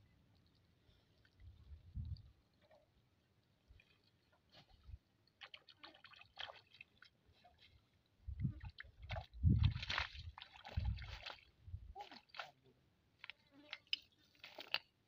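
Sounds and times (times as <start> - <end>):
net splashing in shallow water: 3.7 - 7.8, 8.6 - 12.6, 13.2 - 15.0.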